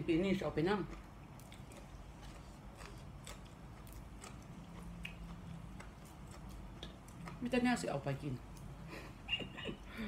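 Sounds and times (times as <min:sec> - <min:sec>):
person chewing food: 0:00.6 - 0:07.6.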